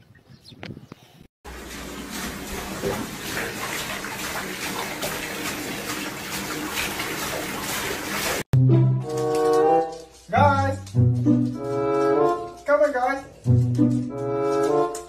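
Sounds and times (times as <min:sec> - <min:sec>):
water pouring into a bath: 0:01.5 - 0:08.5.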